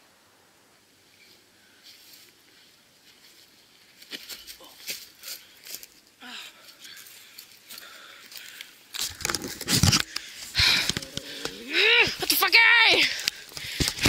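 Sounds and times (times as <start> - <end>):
camera handling rustling: 8.9 - 11.6, 13.2 - 14.0.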